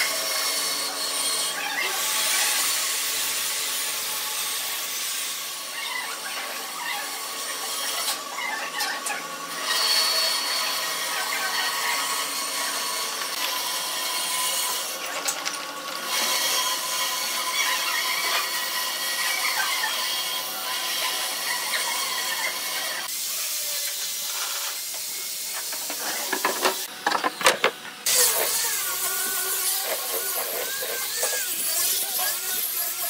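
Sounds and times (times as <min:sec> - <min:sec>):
angle grinder sanding wood: 0:16.0 - 0:33.0.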